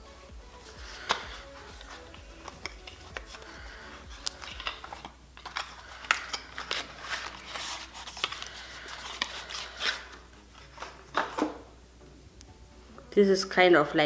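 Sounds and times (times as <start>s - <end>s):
cardboard and plastic rustling: 0.6s - 11.7s.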